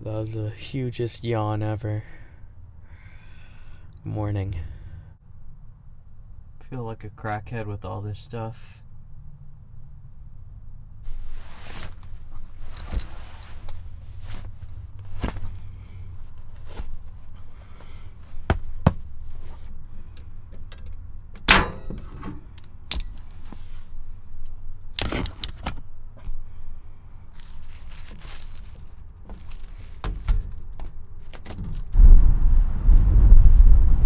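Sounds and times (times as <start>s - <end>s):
low steady rumble: 0.0s - 34.0s
rustling of gear and bedding: 11.0s - 21.0s, 21.8s - 32.0s
sharp clicks and metal knocks: 20.1s - 23.6s, 24.4s - 26.3s.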